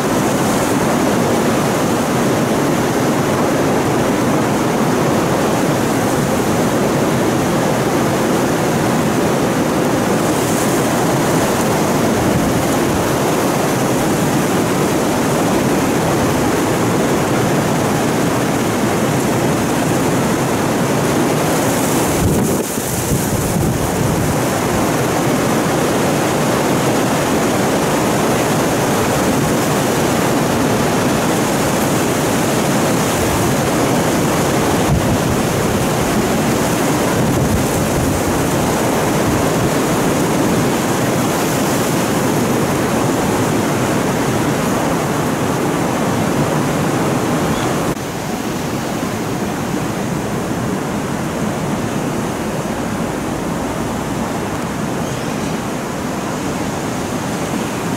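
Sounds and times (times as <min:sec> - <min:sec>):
rough sea surf: 0:00.0 - 0:57.9
strong wind: 0:00.0 - 0:57.9.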